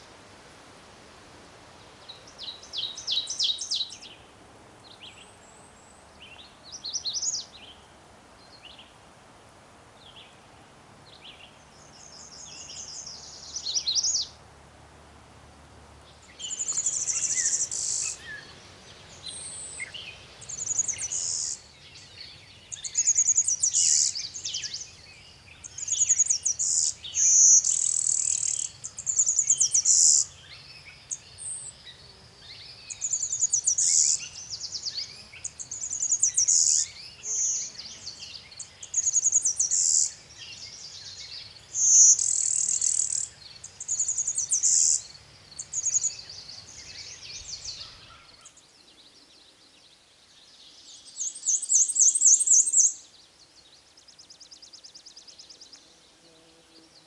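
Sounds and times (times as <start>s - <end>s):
birds chirping faintly: 1.4s - 14.5s, 15.6s - 57.0s
high buzzy bird song: 1.4s - 14.5s, 15.5s - 57.0s
warbler singing short phrase: 16.4s - 31.5s.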